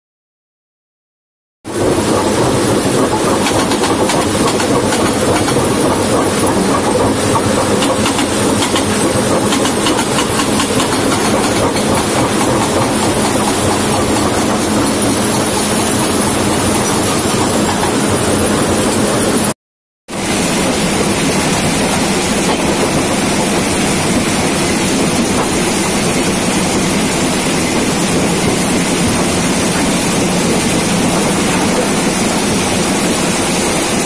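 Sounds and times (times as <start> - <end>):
hydraulic breaker hammering stone: 3.0 - 18.2.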